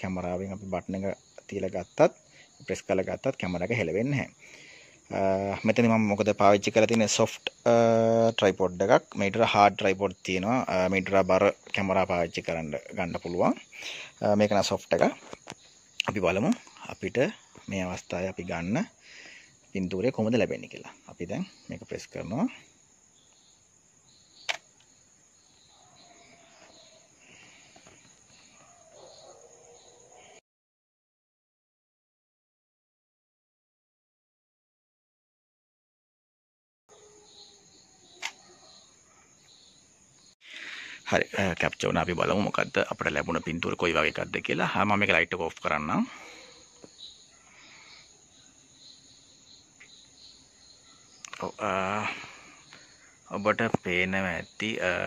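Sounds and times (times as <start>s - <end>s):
faint crickets chirping: 0.0s - 30.4s, 36.9s - 55.0s
small click: 38.2s - 38.4s.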